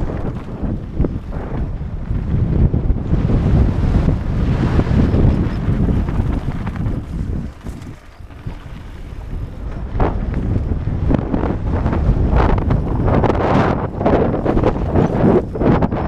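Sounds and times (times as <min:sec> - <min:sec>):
bike tyres rumbling on dirt: 0:00.0 - 0:16.0
wind buffeting microphone: 0:00.0 - 0:16.0
clattering knocks from trail bumps: 0:05.4 - 0:11.2.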